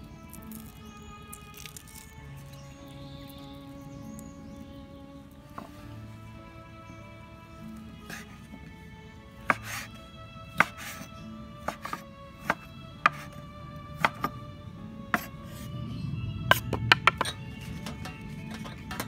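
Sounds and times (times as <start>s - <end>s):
background music: 0.0s - 19.0s
knife chopping on wooden board: 9.5s - 9.9s, 10.6s - 11.0s, 11.6s - 13.3s, 14.0s - 14.4s.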